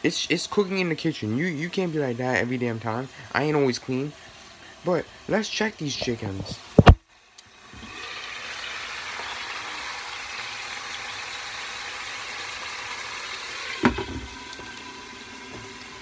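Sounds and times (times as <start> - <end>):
steaks sizzling in a pan: 7.9 - 16.0
knock: 13.8 - 14.3.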